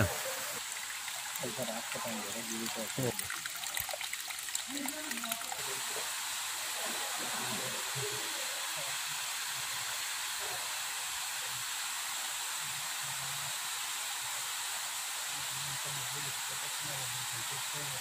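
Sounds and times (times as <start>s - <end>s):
waterfall rushing: 0.0s - 3.6s, 4.6s - 18.0s
water trickling over stones: 0.0s - 6.6s.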